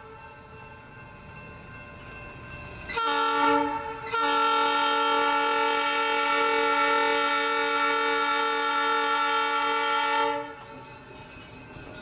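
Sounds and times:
locomotive air horn blasts: 0:02.9 - 0:10.6.

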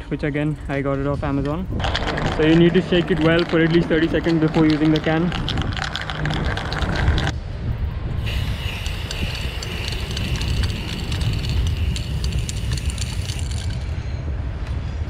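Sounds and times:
low rumble: 0:01.6 - 0:15.0
spray paint can hissing: 0:01.8 - 0:07.3, 0:08.2 - 0:13.9.

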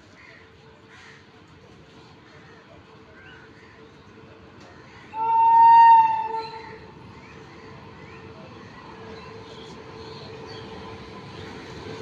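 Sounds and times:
faint train running noise: 0:00.0 - 0:12.0
high-pitched locomotive horn: 0:05.2 - 0:06.8.

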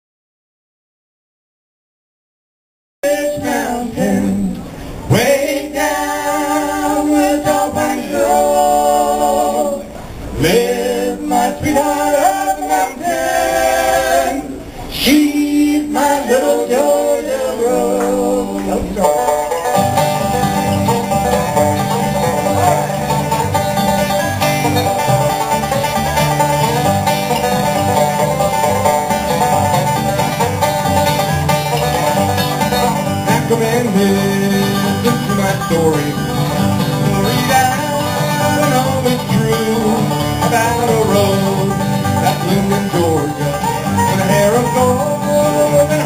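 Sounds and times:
acoustic guitar: 0:03.0 - 0:46.0
upright bass: 0:03.1 - 0:46.0
banjo: 0:05.0 - 0:46.0
person singing: 0:33.3 - 0:46.0.

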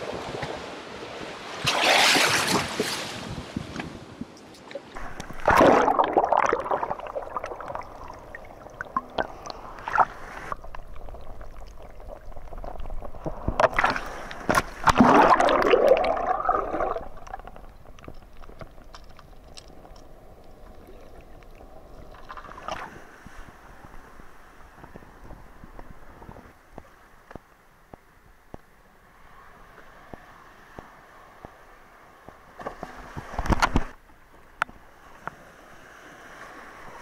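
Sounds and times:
water splashing and gurgling: 0:01.5 - 0:03.5, 0:04.8 - 0:24.9
muffled underwater wash: 0:04.9 - 0:37.0.

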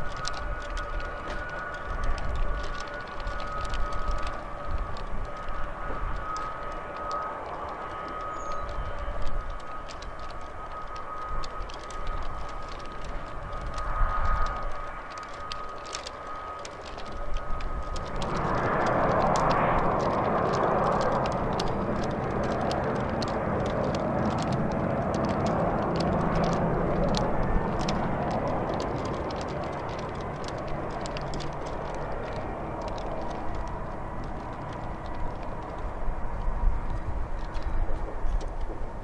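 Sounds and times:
jet engines rushing: 0:00.0 - 0:39.0.

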